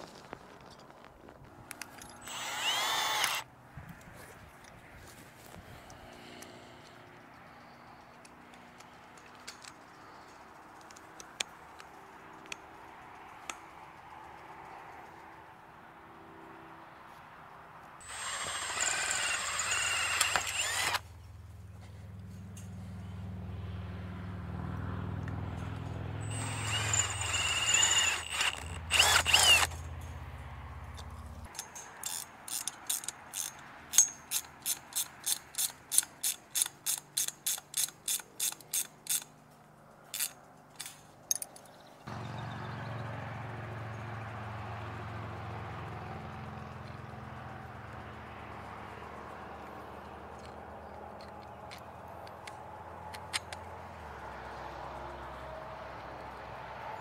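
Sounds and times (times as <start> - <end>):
cordless drill boring into steel: 2.2 - 3.4, 18.0 - 21.0, 26.2 - 29.8
ratcheting wrench clicking: 26.3 - 29.8, 31.0 - 39.4, 40.1 - 41.5.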